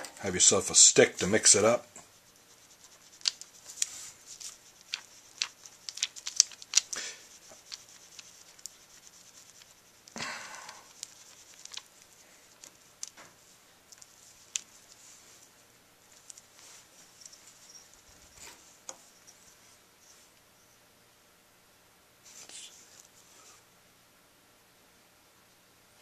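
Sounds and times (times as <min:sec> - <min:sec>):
stick scraping plastic sheet: 0:01.2 - 0:13.2
plastic sheet crinkling: 0:02.5 - 0:13.2.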